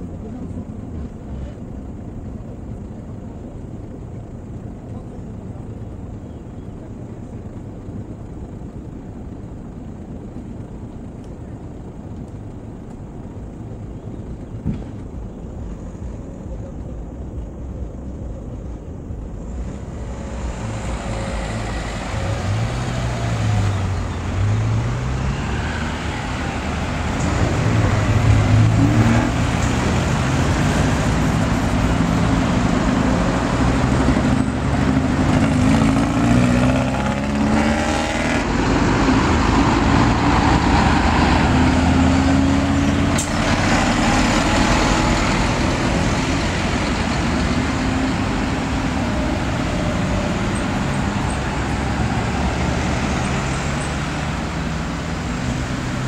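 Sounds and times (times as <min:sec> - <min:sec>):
cars passing: 0:13.2 - 0:56.0.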